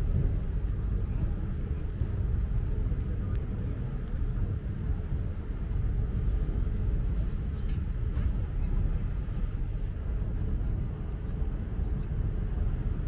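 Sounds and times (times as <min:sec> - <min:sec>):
boat engine rumble: 0:00.0 - 0:13.0.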